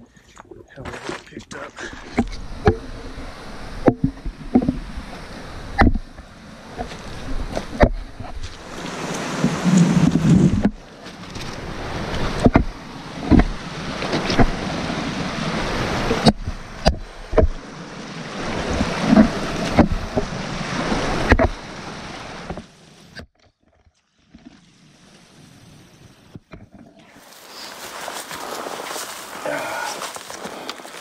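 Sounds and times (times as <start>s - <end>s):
footsteps on loose rock: 0.8s - 2.8s, 6.8s - 12.7s, 27.2s - 31.0s
stream water rushing: 1.8s - 23.1s, 27.0s - 31.0s
wind buffeting microphone: 1.9s - 10.9s
trekking pole knocking on rock: 5.8s - 6.0s, 16.2s - 17.6s.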